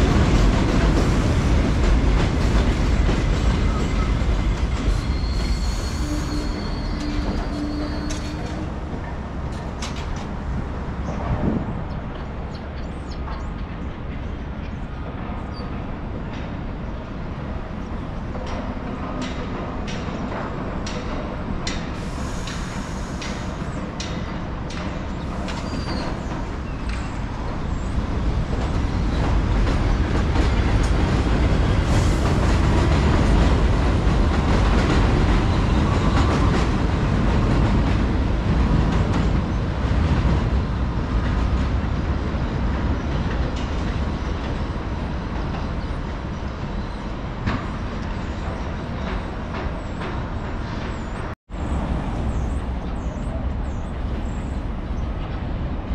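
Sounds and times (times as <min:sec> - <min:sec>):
subway train rumbling: 0:00.0 - 0:55.9.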